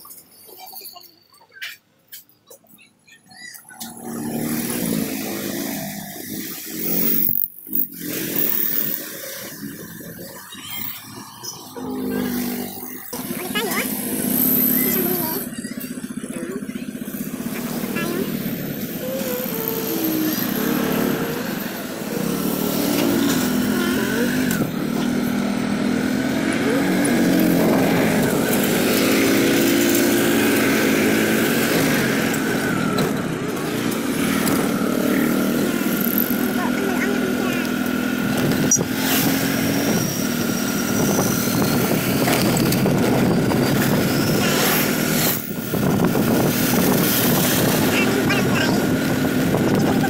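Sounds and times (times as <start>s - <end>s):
wind and road noise: 3.8s - 50.0s
motorcycle engine running: 11.7s - 50.0s.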